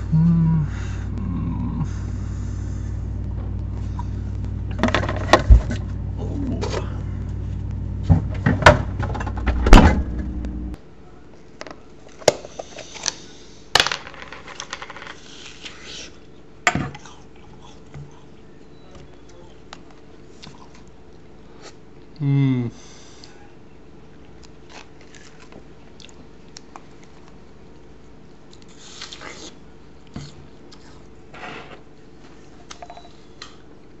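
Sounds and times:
refrigerator humming: 0.0 - 10.8.

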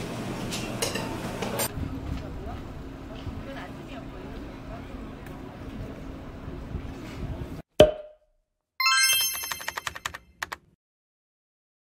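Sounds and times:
faint street ambience: 1.7 - 7.6
rising run of chime tones: 8.8 - 10.0
keyboard typing clicks: 9.1 - 10.6.

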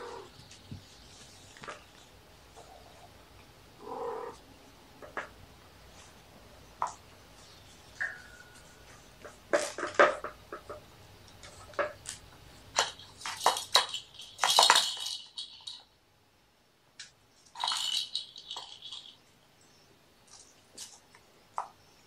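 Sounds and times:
small objects clattering: 9.2 - 15.9, 17.4 - 19.2.

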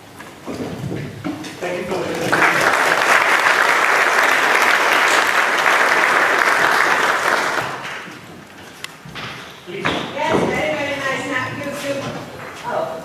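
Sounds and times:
audience applauding: 2.1 - 8.2.

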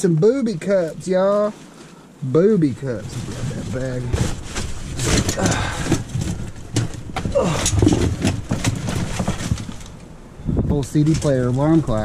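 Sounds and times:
plastic bag rustling: 2.8 - 10.0
junk clattering and knocking: 3.1 - 10.0.

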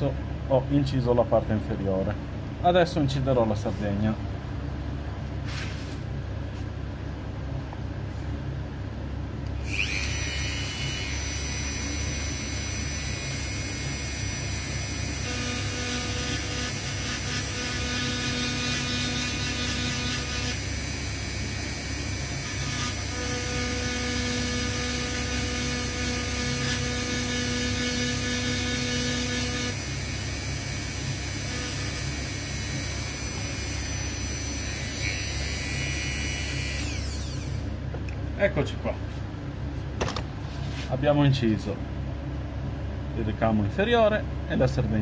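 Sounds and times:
steady humming tone: 6.2 - 40.8
rotary tool whining: 9.6 - 37.7.

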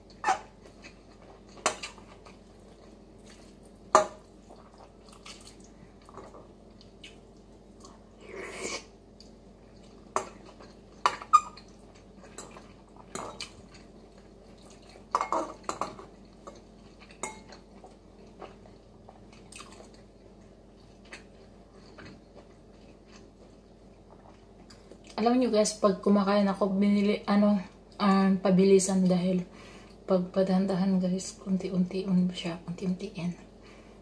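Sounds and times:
slurping and chewing: 4.4 - 15.1, 16.2 - 25.2.

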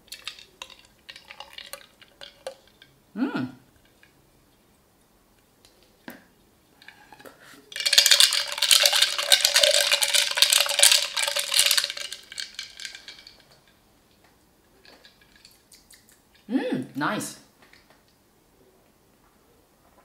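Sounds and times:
straw clinking in a glass: 7.8 - 13.4.

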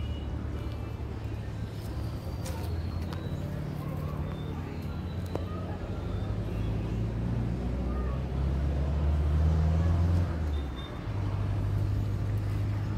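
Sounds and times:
vehicle engine humming: 0.0 - 12.9.

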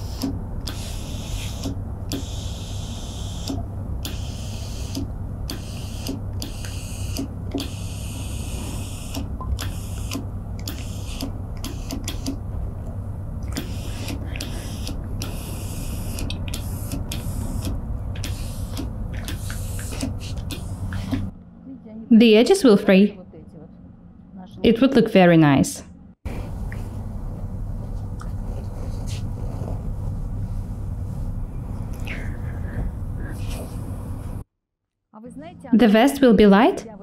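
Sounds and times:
steam iron hissing: 0.0 - 12.4, 13.6 - 21.3
steady low hum: 0.0 - 34.5, 35.2 - 37.0.

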